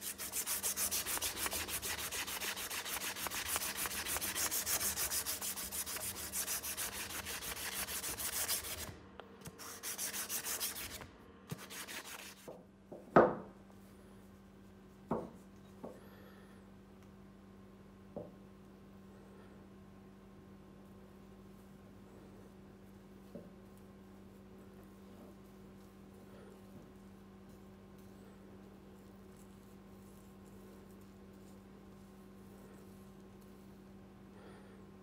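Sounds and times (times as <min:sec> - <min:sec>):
hand sanding strokes: 0:00.0 - 0:12.5.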